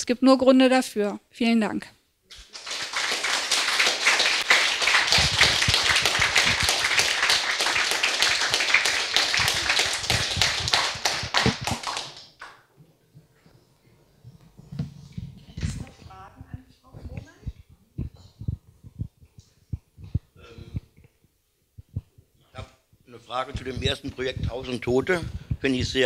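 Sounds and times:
audience applauding: 0:02.3 - 0:12.6.

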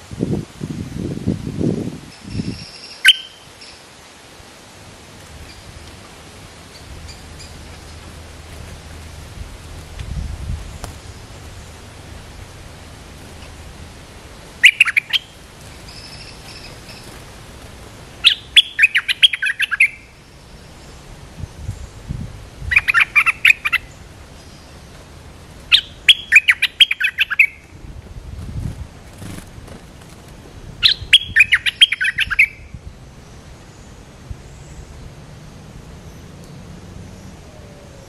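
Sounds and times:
bulbul chattering song: 0:02.7 - 0:03.8, 0:14.5 - 0:17.3, 0:18.1 - 0:20.5, 0:25.7 - 0:27.7, 0:30.8 - 0:32.7.

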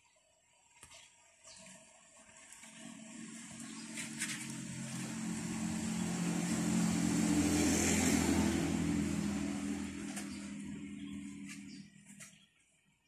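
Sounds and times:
vehicle passing by: 0:02.6 - 0:12.2.

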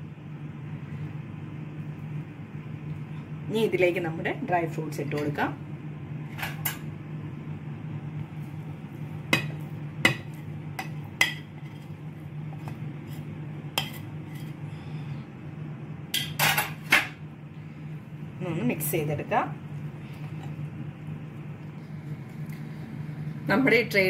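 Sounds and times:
scraping into batter: 0:11.4 - 0:14.6.

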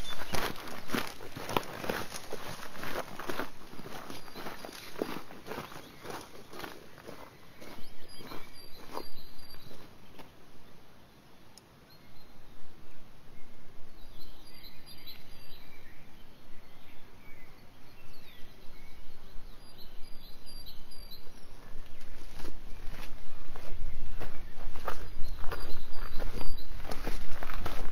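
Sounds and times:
bird chirps: 0:00.0 - 0:01.4, 0:02.2 - 0:10.4, 0:13.4 - 0:27.8
footsteps on rocky dirt trail: 0:00.0 - 0:10.3, 0:21.7 - 0:27.9
forest ambience: 0:00.0 - 0:27.9.

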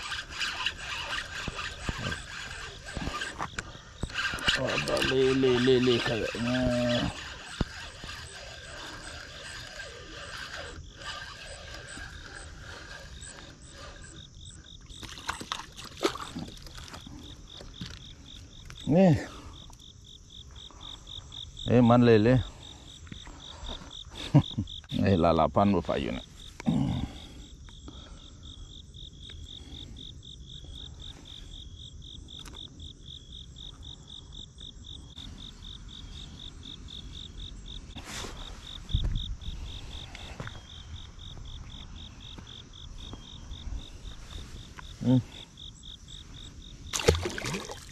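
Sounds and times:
insects chirping: 0:00.0 - 0:47.9
fish splashing in water: 0:15.0 - 0:17.0, 0:46.9 - 0:47.9.

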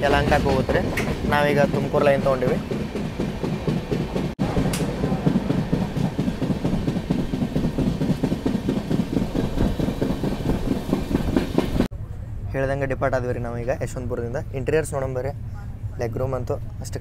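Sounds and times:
train wheels clattering on rails: 0:00.0 - 0:11.9.

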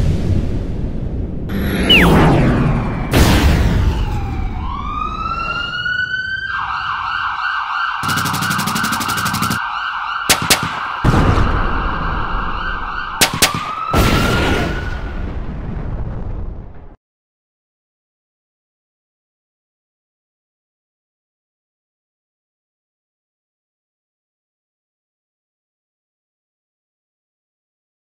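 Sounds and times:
loud explosion blast: 0:00.0 - 0:04.7, 0:10.4 - 0:12.7, 0:13.4 - 0:17.0
sharp gunshots: 0:01.5 - 0:04.2, 0:08.0 - 0:09.6, 0:10.2 - 0:11.6, 0:13.2 - 0:15.0
warbling siren wail: 0:01.5 - 0:15.2
rapid gunfire rattle: 0:08.0 - 0:09.6, 0:10.3 - 0:11.0, 0:13.2 - 0:13.9.

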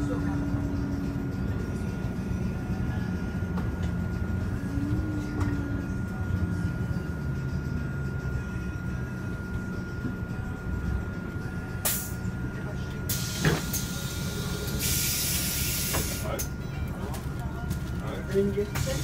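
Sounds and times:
bus engine drone: 0:00.0 - 0:19.0.

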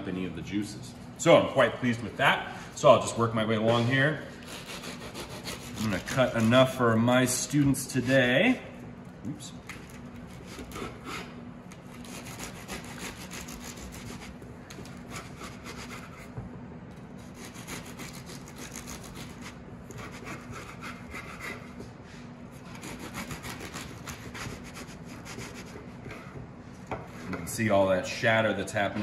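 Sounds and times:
knife sawing through crisp pastry: 0:04.4 - 0:06.8, 0:10.3 - 0:16.3, 0:17.2 - 0:21.8, 0:22.5 - 0:26.3.

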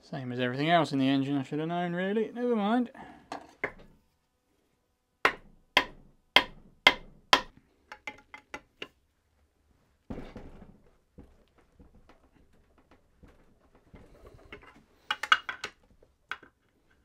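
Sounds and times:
hammer striking metal: 0:05.3 - 0:07.5.

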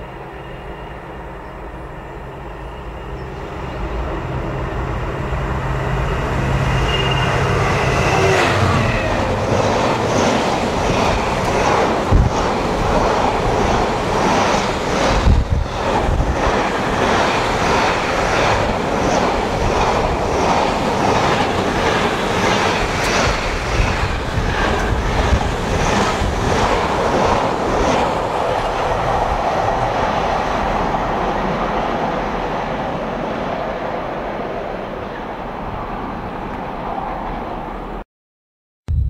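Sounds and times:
train rumble: 0:00.0 - 0:38.0
train wheels clickety-clack: 0:08.3 - 0:30.6.

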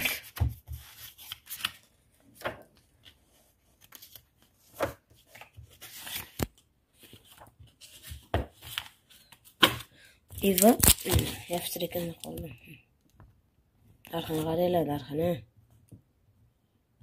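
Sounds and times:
pages rustling: 0:00.0 - 0:12.4.

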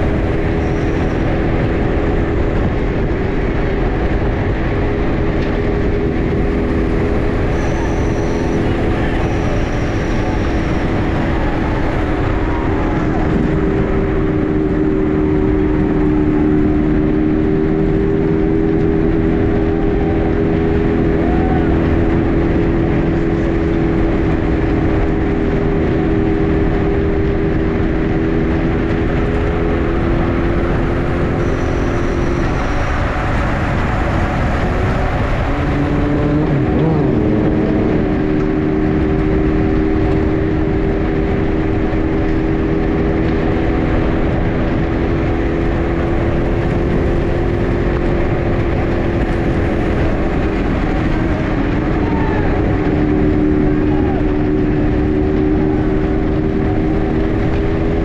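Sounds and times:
wind rushing over microphone: 0:00.0 - 0:58.0.

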